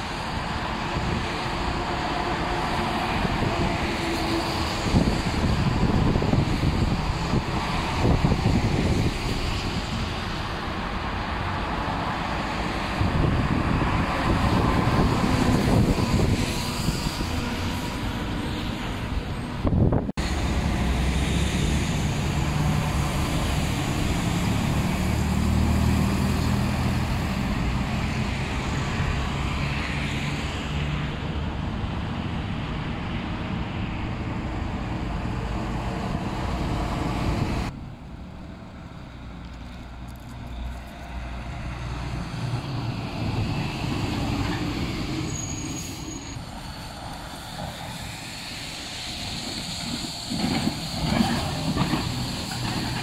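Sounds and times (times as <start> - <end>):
diesel trucks rumbling past: 0.0 - 53.0
tyres hissing on wet pavement: 38.6 - 53.0.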